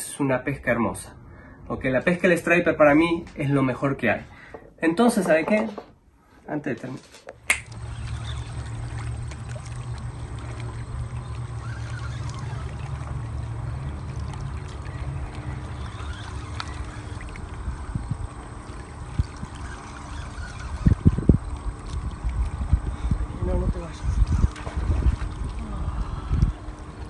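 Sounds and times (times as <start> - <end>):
waves lapping against rocks: 7.6 - 27.0
wind rumbling on microphone: 7.6 - 27.0.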